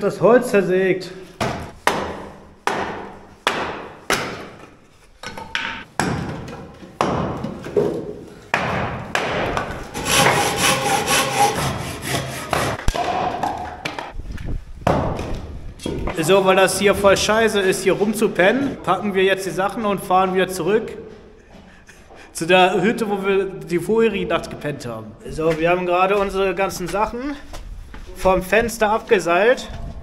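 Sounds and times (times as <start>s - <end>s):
sharp wooden knocks: 1.4s - 14.2s
hand saw rasping: 9.9s - 12.8s.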